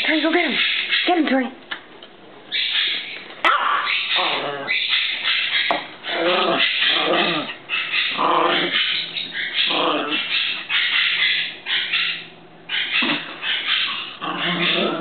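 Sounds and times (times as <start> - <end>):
dogs growling in play: 3.4 - 5.4, 6.0 - 15.0.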